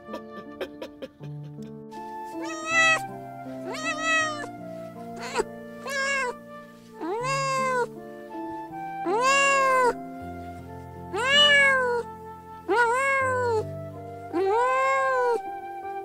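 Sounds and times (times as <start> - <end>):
soft background music: 0.0 - 16.0
kitten meowing: 2.3 - 8.0, 9.0 - 10.1, 11.0 - 15.5.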